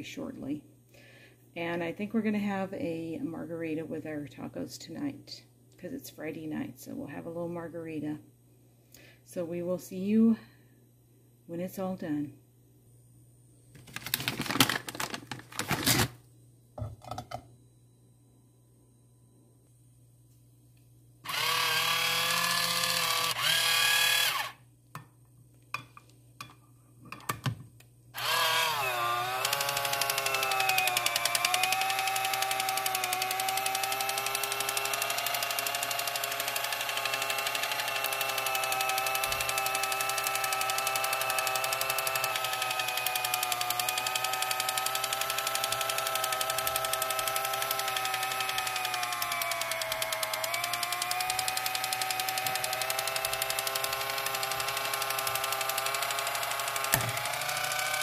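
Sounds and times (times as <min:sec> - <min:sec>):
electric can opener whining: 0:14.0 - 0:16.1, 0:21.3 - 0:24.6, 0:28.2 - 0:58.0
can opener clicks: 0:34.6 - 0:58.0.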